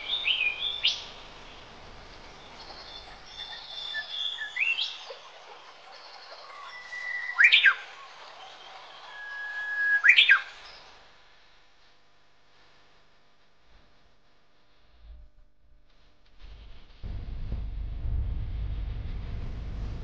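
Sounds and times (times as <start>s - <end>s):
bird whistling: 0.0s - 1.1s, 2.6s - 10.8s.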